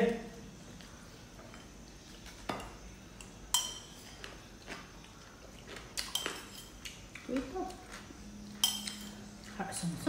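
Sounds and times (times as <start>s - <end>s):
metal spoons clinking on plates: 2.5s - 4.2s, 6.0s - 6.9s, 8.6s - 9.4s.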